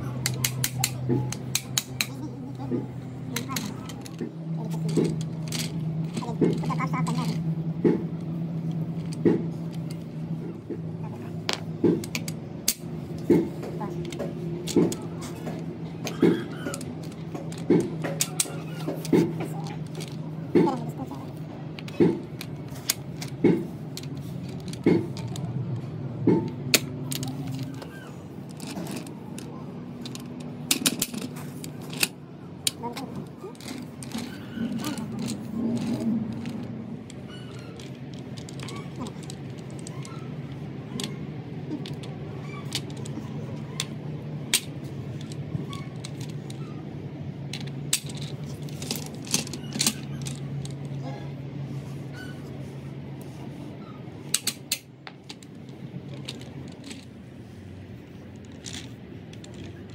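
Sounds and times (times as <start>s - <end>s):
low machine hum: 0.0s - 59.9s
metal tools clinking: 3.3s - 7.4s, 14.0s - 46.8s, 47.5s - 51.2s, 54.3s - 59.9s
metallic clicks and clinks: 47.5s - 51.0s.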